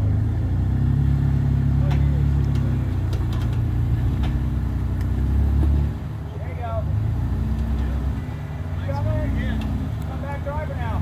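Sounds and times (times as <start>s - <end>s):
engine running under load: 0.0s - 11.0s.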